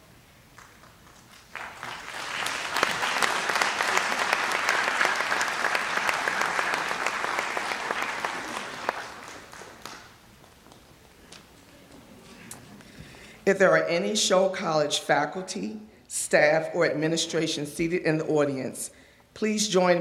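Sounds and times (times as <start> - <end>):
audience applauding: 0.6 - 10.8.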